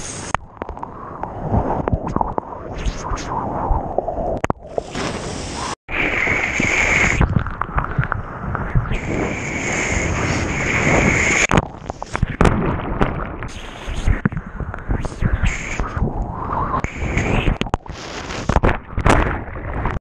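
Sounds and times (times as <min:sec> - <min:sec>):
seawater churning and splashing: 0:00.2 - 0:14.2
surfboard throwing spray: 0:04.8 - 0:07.2.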